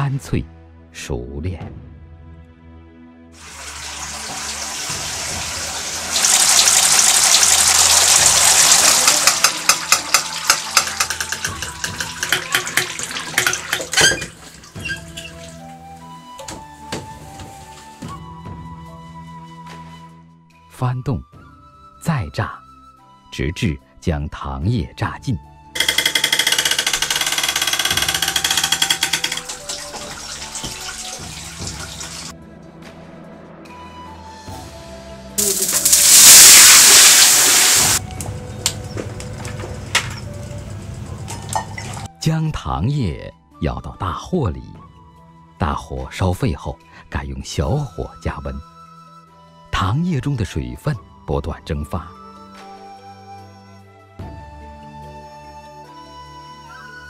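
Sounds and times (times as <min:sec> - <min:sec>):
liquid gushing from press: 0:03.4 - 0:15.5, 0:29.1 - 0:32.3
liquid dripping and splashing: 0:03.4 - 0:15.8, 0:29.2 - 0:32.3, 0:35.4 - 0:38.0, 0:39.1 - 0:42.1.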